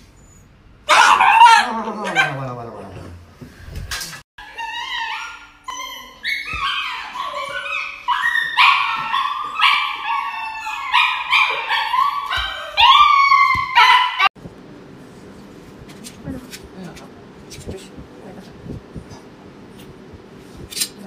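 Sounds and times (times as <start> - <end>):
dog yelping howls: 0.9 - 2.4, 4.4 - 14.3.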